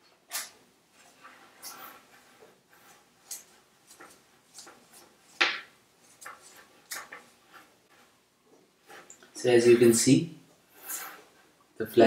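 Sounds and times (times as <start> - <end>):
light clicks and rubbing: 0.3 - 5.4, 6.0 - 9.4.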